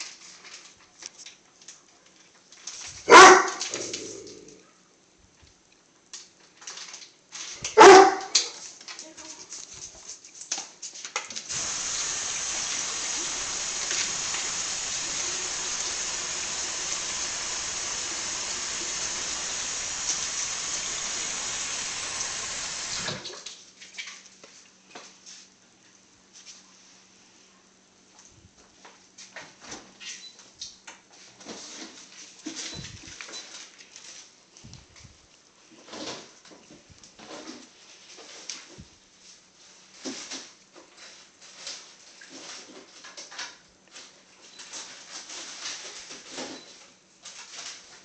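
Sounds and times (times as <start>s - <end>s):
dog barking: 3.1s - 4.0s, 7.8s - 8.5s
steady hiss: 11.5s - 23.4s.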